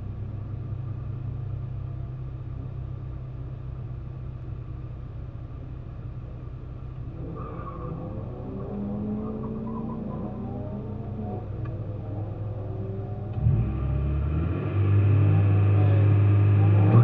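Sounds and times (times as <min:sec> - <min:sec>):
race car engine idling: 0:00.0 - 0:07.3.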